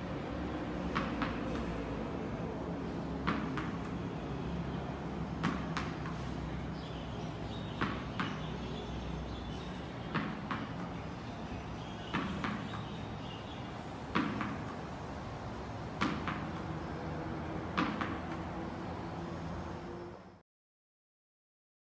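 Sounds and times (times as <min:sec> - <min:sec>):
tennis ball knocking on wall and floor: 0:00.8 - 0:01.8, 0:03.1 - 0:04.1, 0:05.3 - 0:06.4, 0:07.6 - 0:09.4, 0:10.0 - 0:13.3, 0:14.1 - 0:14.9, 0:15.9 - 0:17.0, 0:17.7 - 0:18.6.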